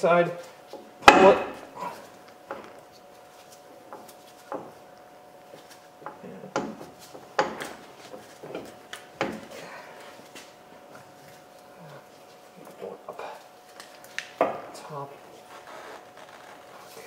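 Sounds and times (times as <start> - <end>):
metallic clunks and knocks: 6.1 - 9.5.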